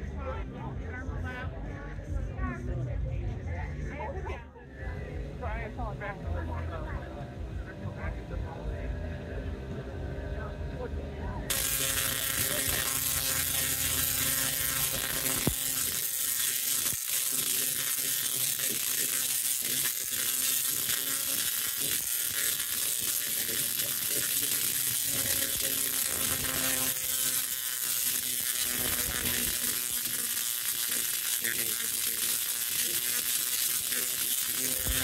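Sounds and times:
tesla coil sparks crackling: 0:11.5 - 0:35.0.

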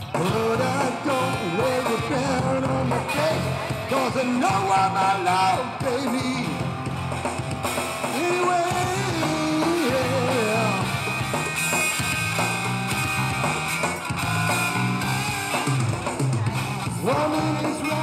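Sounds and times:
electric guitar: 0:00.0 - 0:18.0
rock and roll band playing live: 0:00.0 - 0:18.0.

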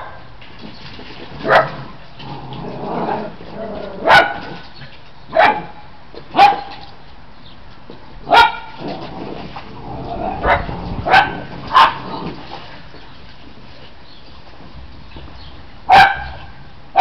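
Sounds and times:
puppies barking: 0:05.3 - 0:06.8, 0:08.3 - 0:08.8, 0:10.2 - 0:12.2, 0:15.9 - 0:17.0.

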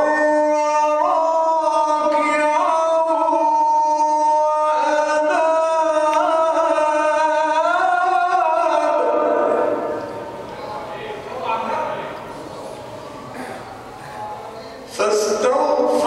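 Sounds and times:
man chanting into a microphone: 0:00.0 - 0:10.0, 0:14.9 - 0:16.0.

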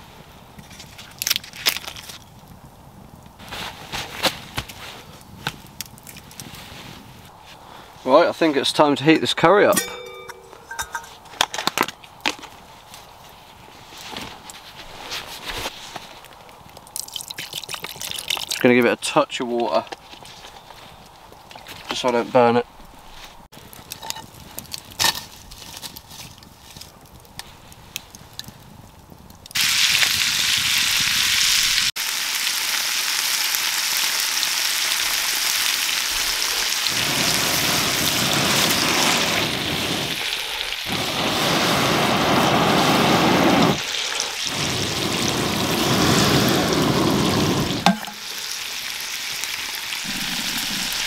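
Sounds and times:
chicken sizzling in frying pan: 0:29.6 - 0:51.0.

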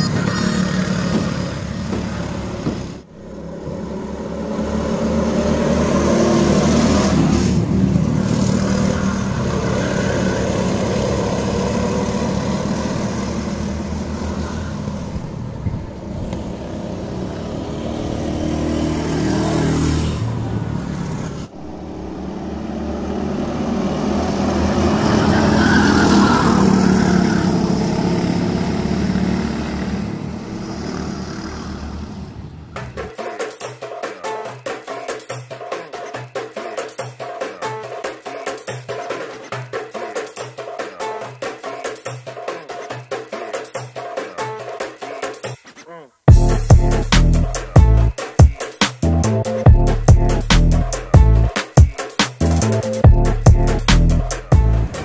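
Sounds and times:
go-kart engines passing: 0:00.0 - 0:33.0.

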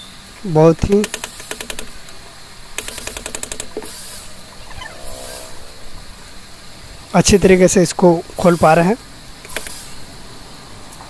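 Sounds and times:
cordless screwdriver rapid clicking: 0:01.0 - 0:01.9, 0:02.8 - 0:04.0.

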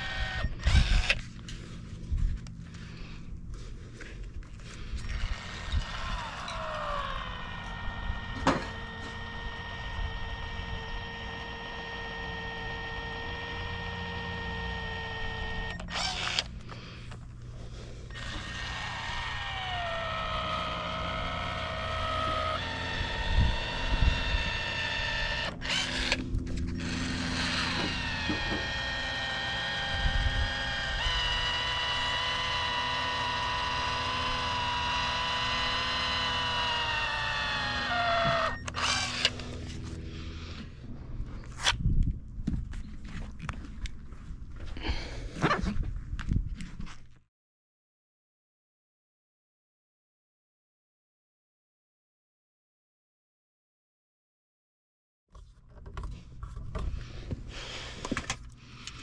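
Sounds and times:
electric tool motor whining: 0:00.0 - 0:40.8.

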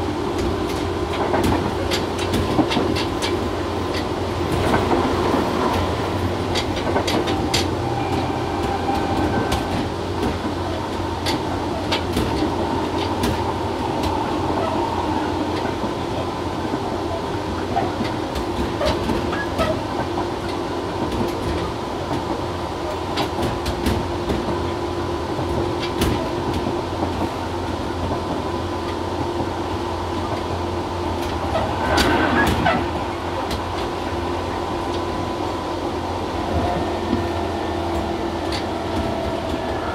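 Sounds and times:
electric train running rumble: 0:00.0 - 0:39.9
wheels clicking over rail joints: 0:00.3 - 0:24.8, 0:36.5 - 0:39.9.

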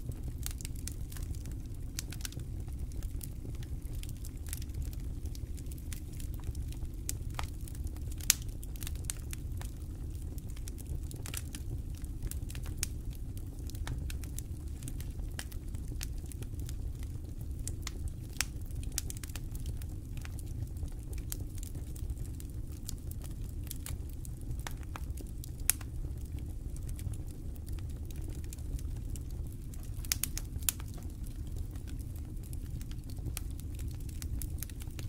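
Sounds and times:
campfire crackling: 0:00.0 - 0:35.0.

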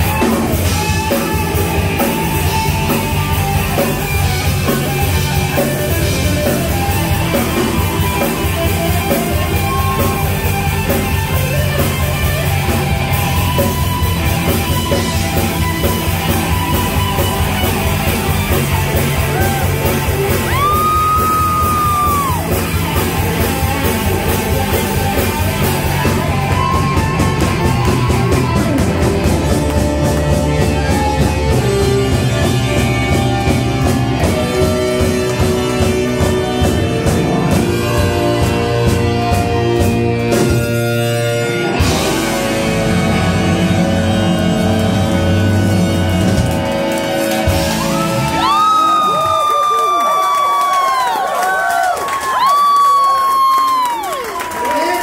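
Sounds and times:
live band playing: 0:00.0 - 0:55.0.

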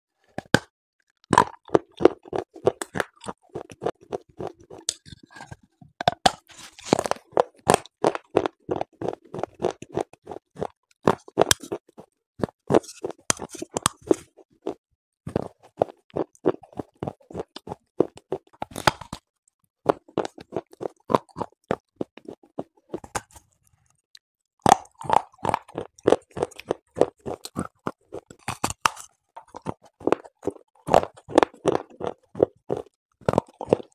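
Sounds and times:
clay crunching as chewed: 0:00.2 - 0:33.9.

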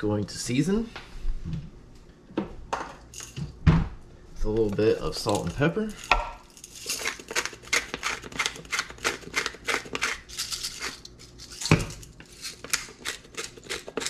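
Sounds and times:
salt and pepper grinders grinding: 0:04.8 - 0:14.0.

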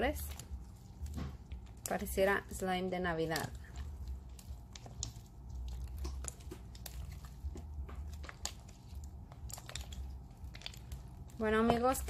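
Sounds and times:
wet clicks and crackles: 0:00.0 - 0:12.0
hands squeezing sticky slime: 0:03.2 - 0:12.0.

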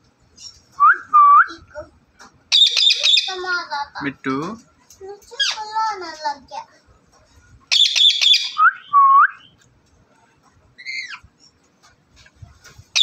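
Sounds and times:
parrot screeching: 0:02.5 - 0:03.4, 0:07.7 - 0:08.6, 0:10.8 - 0:11.2.

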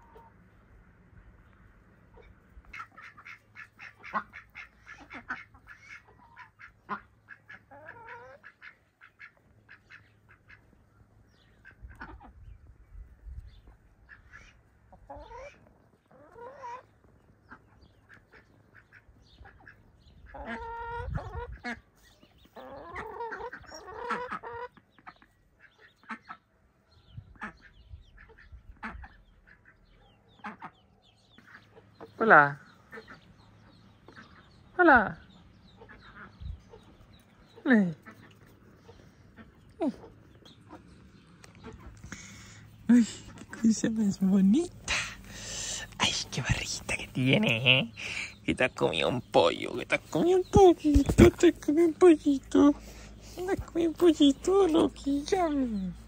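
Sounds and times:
ducklings peeping: 0:01.4 - 0:56.0
adult duck calling: 0:02.2 - 0:10.7, 0:14.0 - 0:21.9, 0:22.6 - 0:26.5, 0:27.3 - 0:30.8, 0:31.4 - 0:40.8.

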